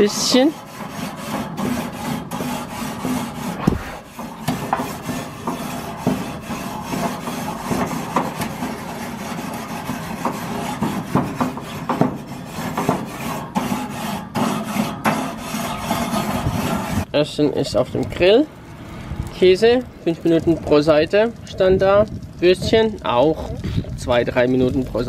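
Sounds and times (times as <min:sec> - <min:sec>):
wire brush scrubbing metal grill: 0:00.0 - 0:17.1.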